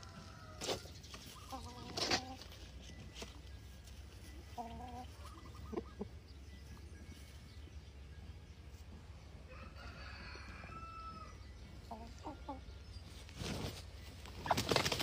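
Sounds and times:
chickens clucking: 0:00.0 - 0:07.6, 0:11.2 - 0:15.0.

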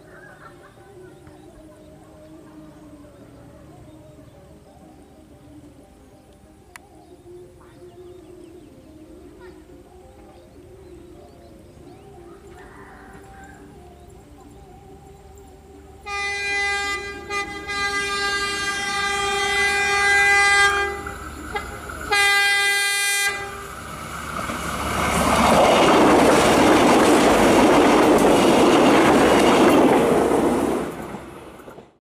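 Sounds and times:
train horn blasts: 0:16.0 - 0:23.9
train wheels clacking on rails: 0:20.6 - 0:31.9.

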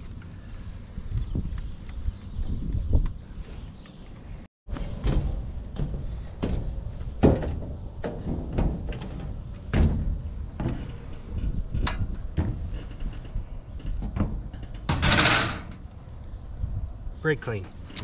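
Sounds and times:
footsteps on sheet-metal roof: 0:02.4 - 0:15.8.

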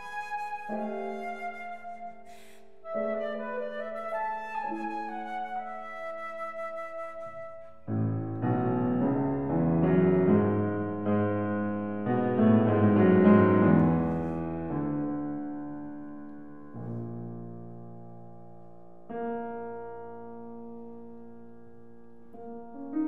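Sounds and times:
flute held note: 0:00.0 - 0:05.2
piano chords: 0:00.0 - 0:23.0.

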